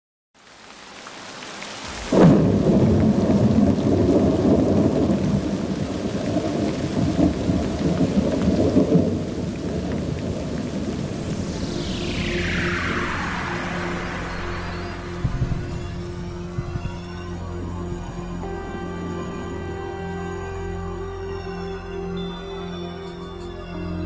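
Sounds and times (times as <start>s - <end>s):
rain hiss: 0.4s - 24.0s
sharp thunderclap: 2.1s - 5.6s
rolling rumble of thunder: 2.1s - 16.8s.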